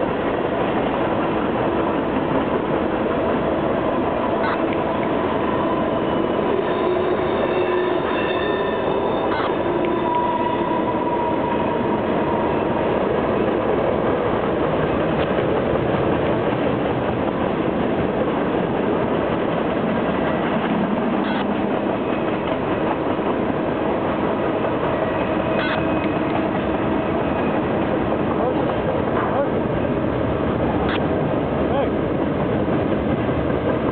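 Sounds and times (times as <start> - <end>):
train wheels rumbling on rails: 0.0 - 33.9.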